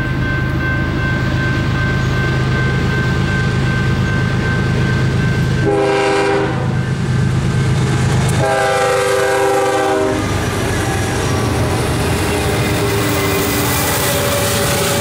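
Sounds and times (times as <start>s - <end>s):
diesel locomotives rumbling: 0.0s - 15.0s
locomotive air horn blasts: 5.6s - 6.8s, 8.4s - 10.4s.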